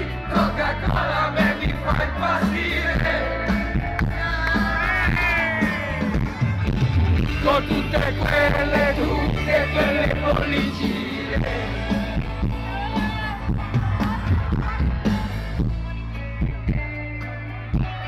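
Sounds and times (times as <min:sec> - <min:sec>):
drum beat: 0:00.0 - 0:16.9
bass line: 0:00.0 - 0:18.0
live rock band: 0:00.0 - 0:18.0
person singing: 0:07.3 - 0:18.0.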